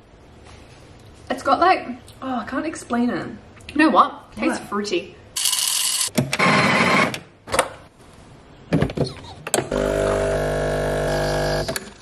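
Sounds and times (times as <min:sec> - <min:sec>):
espresso pump buzzing hum: 0:09.7 - 0:11.8.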